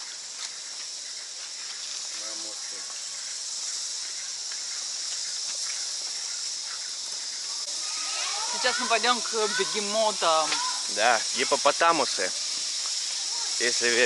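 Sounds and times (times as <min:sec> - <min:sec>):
shrill insect chorus: 0:00.0 - 0:14.0.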